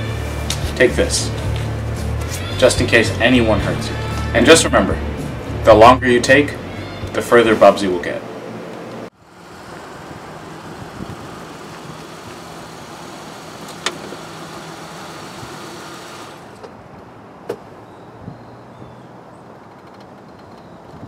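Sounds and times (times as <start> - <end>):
car engine humming: 5.0 - 17.8.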